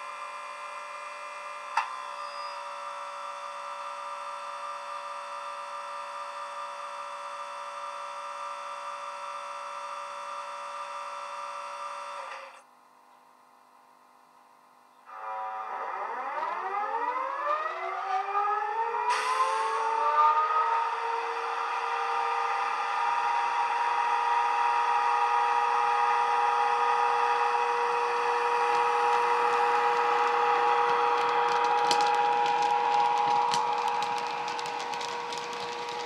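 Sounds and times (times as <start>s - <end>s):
electric locomotive inverter whine: 0.0s - 12.8s, 14.9s - 36.0s
hiss: 19.1s - 19.8s.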